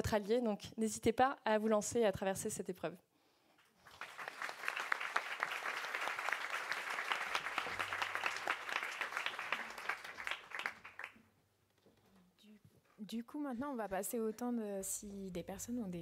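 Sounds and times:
audience applauding: 3.8s - 11.2s.

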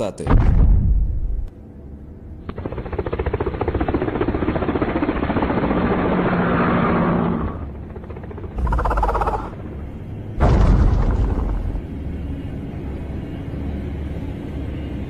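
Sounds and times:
helicopter-like chopping: 2.4s - 12.2s
low steady hum: 7.7s - 15.0s.

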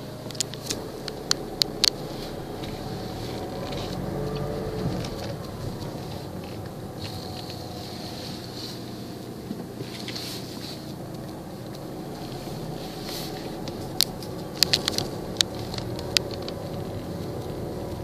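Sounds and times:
car engine and road hum: 0.0s - 18.0s
sharp clicks: 13.6s - 17.6s.

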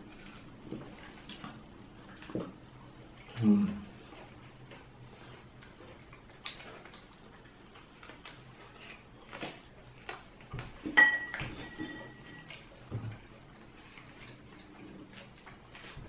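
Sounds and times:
chewing and eating sounds: 0.0s - 16.0s
cutlery clinking on ceramic plate: 11.0s - 12.5s.

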